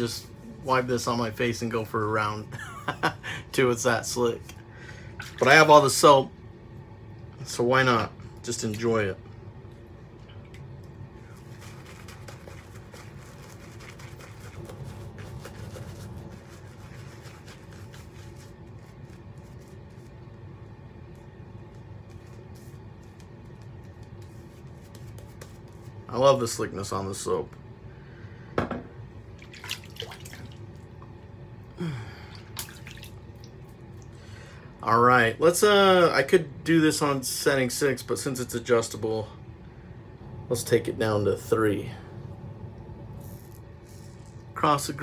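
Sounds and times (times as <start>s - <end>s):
shaving brush swishing lather: 11.2s - 20.4s, 21.1s - 26.8s
water drips: 29.4s - 30.6s, 32.4s - 34.1s.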